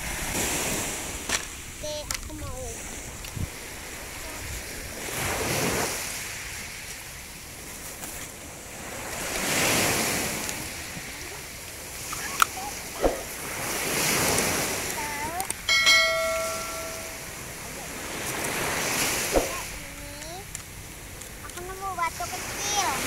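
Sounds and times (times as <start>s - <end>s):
sea waves washing onto beach: 0.0s - 23.0s
short electronic chime: 15.7s - 17.3s.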